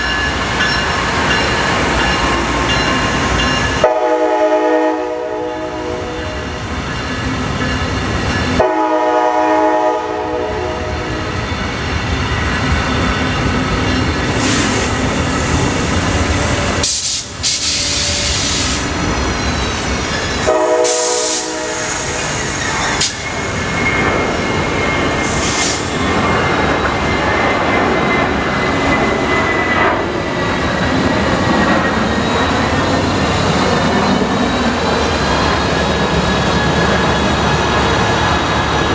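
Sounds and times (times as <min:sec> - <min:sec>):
train wheels rumbling on rail: 0:00.0 - 0:38.9
train horn: 0:03.8 - 0:06.4, 0:08.6 - 0:11.3, 0:20.4 - 0:22.2
high-pitched squeal: 0:11.2 - 0:38.9.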